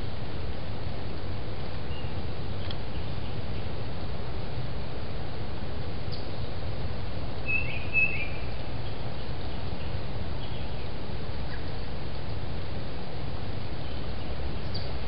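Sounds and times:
low background noise: 0.0 - 15.0
bird chirping: 7.4 - 10.9, 13.8 - 15.0.

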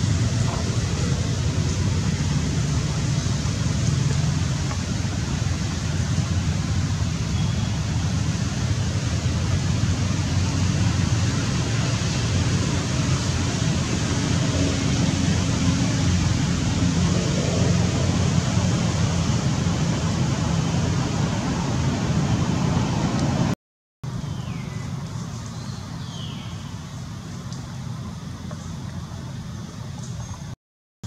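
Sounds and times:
low outdoor rumble: 0.0 - 30.6.

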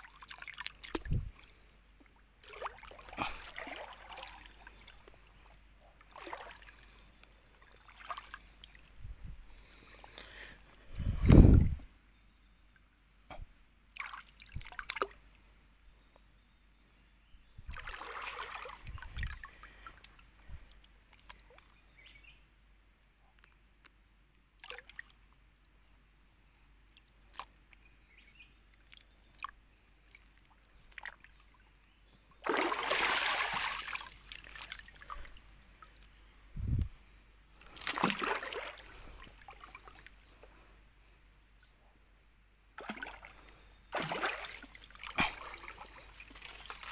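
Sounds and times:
water splashing as person wades: 2.4 - 5.1, 6.0 - 6.9, 7.6 - 8.9, 17.7 - 19.5, 32.4 - 35.5, 37.6 - 40.1, 42.8 - 46.9.

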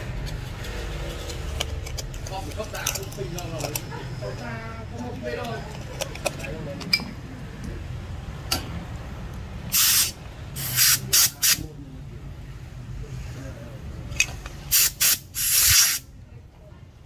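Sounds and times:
short bursts of hissing: 9.7 - 11.6, 14.7 - 16.1.

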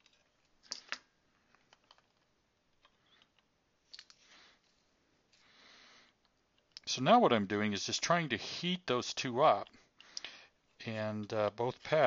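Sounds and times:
soft hiss: 2.6 - 12.0.

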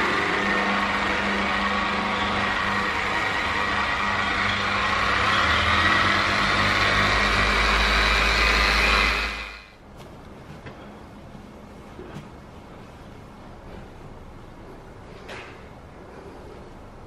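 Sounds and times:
car polisher running: 0.0 - 9.8.

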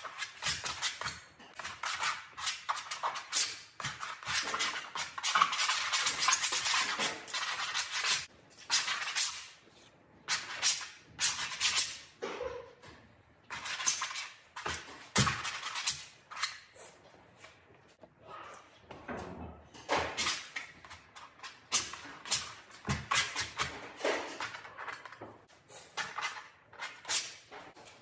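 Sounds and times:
painting tool scraping canvas: 0.0 - 12.1, 13.5 - 17.9, 20.1 - 28.0.

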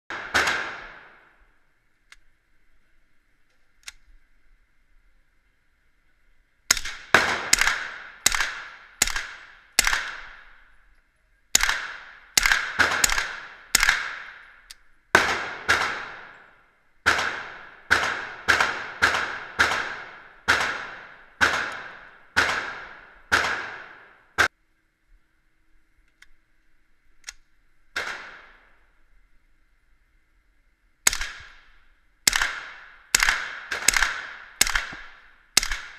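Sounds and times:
suppressed rifle shots: 0.1 - 1.3, 6.7 - 10.6, 11.5 - 24.5, 28.0 - 28.7, 31.0 - 35.9.

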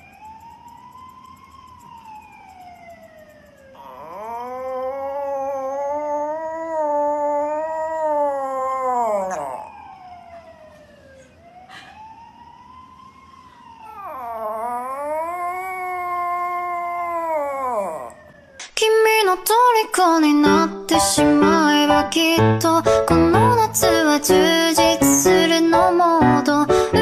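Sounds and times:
small dog howling: 3.8 - 10.1, 13.8 - 18.4.

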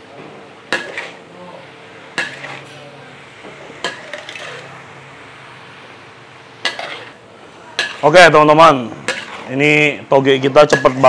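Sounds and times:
spatula clanking against wok: 0.7 - 1.2, 2.1 - 2.7, 3.7 - 4.7, 6.6 - 7.2, 7.8 - 8.2, 9.0 - 9.5, 10.6 - 11.0
spatula scraping food in wok: 0.7 - 1.3, 2.1 - 5.1, 6.5 - 10.0, 10.6 - 11.0.

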